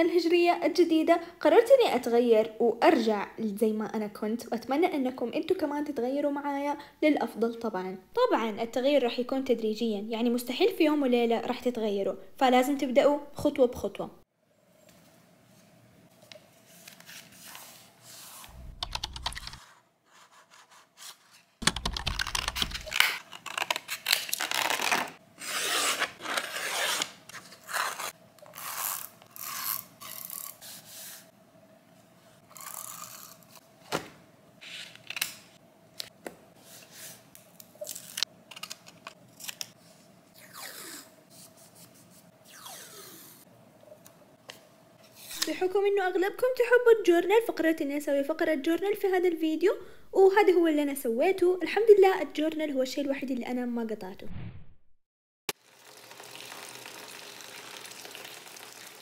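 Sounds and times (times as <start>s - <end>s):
paper tearing and rustling: 20.3s - 30.6s.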